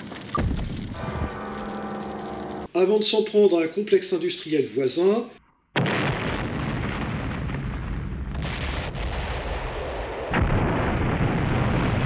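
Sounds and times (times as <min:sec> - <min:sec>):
rumbling explosion blasts: 0:00.0 - 0:01.4, 0:05.8 - 0:12.0.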